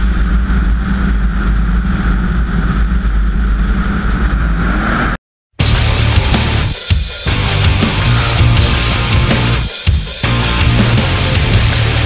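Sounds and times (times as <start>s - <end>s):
wind noise: 0.0s - 6.4s
propeller plane engine running: 0.0s - 12.0s
rock music: 5.6s - 12.0s.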